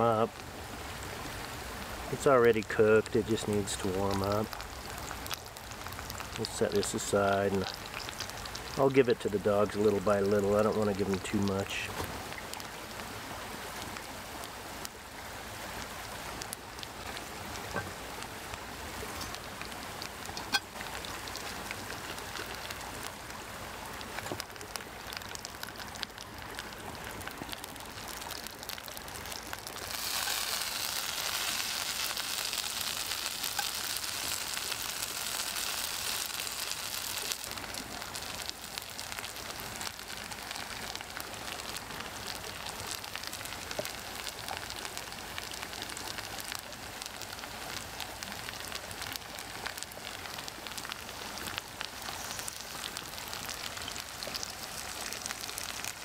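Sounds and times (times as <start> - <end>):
fat popping and crackling: 2.2 - 12.8, 15.8 - 56.0
food sizzling in a pan: 27.7 - 56.0.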